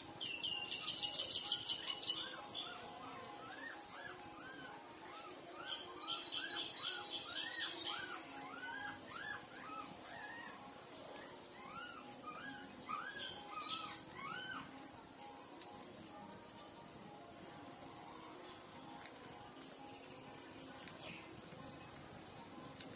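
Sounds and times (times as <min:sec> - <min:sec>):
puppies squeaking and whimpering: 0:07.9 - 0:14.7.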